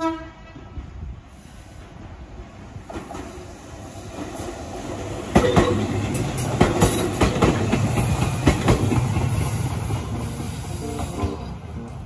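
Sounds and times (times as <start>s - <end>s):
electric train rumbling past: 0.0s - 12.0s
wheels clacking over rail joints: 4.1s - 12.0s.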